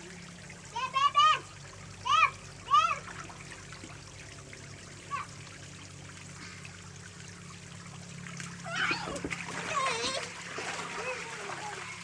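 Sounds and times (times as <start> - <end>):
water jets spraying and pattering: 0.0 - 12.0
child calling: 0.8 - 3.1, 5.1 - 5.3, 8.6 - 10.3.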